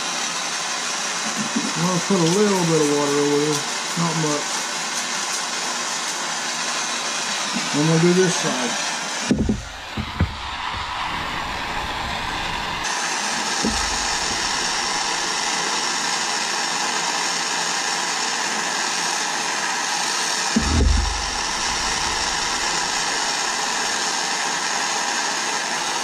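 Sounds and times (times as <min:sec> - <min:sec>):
gas torch flame hissing: 0:00.8 - 0:17.2, 0:19.2 - 0:25.4
dull low thump: 0:09.3 - 0:12.8, 0:13.6 - 0:15.5, 0:20.6 - 0:23.9.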